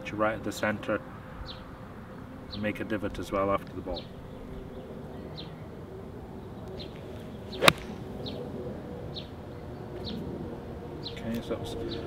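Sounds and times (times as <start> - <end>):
golf club striking ball: 7.6 - 8.2.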